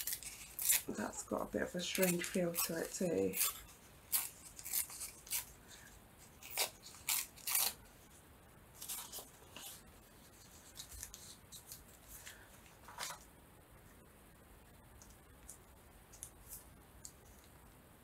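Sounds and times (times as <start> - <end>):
paper tearing: 0.0 - 1.2, 1.8 - 5.5, 6.4 - 7.8.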